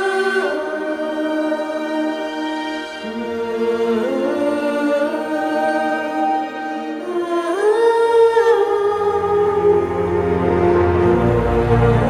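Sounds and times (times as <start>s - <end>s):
music with long held notes: 0.0s - 12.0s.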